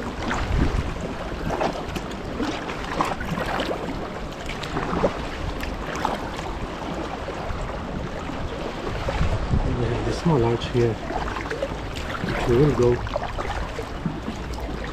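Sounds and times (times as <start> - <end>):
paddle splashes and drips: 0.0 - 14.9
wind rumble on microphone: 0.0 - 14.9.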